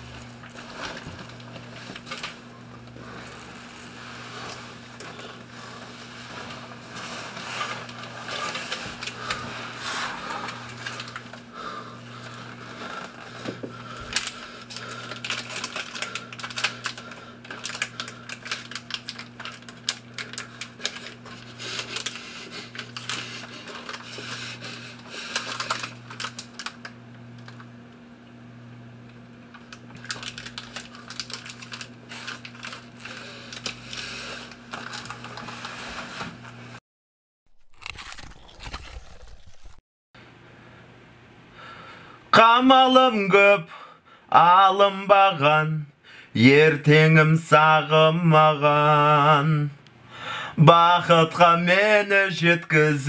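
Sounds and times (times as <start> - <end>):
low pulsing hum: 0.0 - 27.7
rapid clicking and crackling: 14.0 - 27.6, 29.5 - 35.5.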